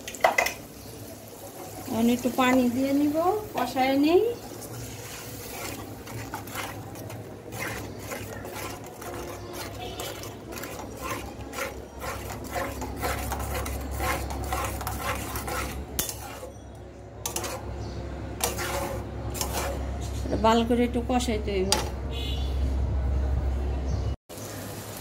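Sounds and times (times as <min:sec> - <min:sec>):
metal spatula scraping a pan: 0:01.9 - 0:20.6.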